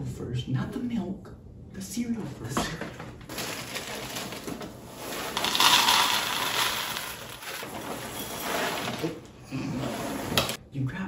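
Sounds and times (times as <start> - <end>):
cereal pouring into bowls: 3.3 - 9.0.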